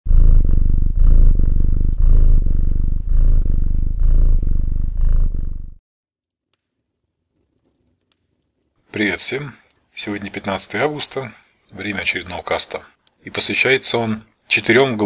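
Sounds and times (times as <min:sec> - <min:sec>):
cat purring close up: 0:00.1 - 0:05.8.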